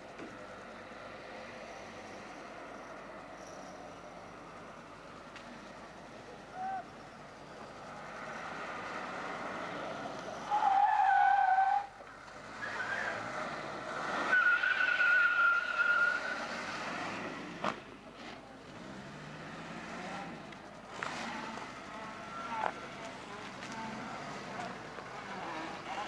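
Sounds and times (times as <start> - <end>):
car engine: 0.0 - 26.0
tyres squealing: 10.4 - 13.5, 14.1 - 16.6, 21.0 - 26.0.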